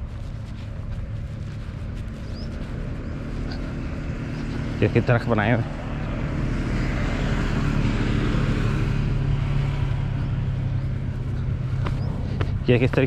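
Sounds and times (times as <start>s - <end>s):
engine drone: 0.0s - 13.0s
low hum: 0.0s - 13.0s.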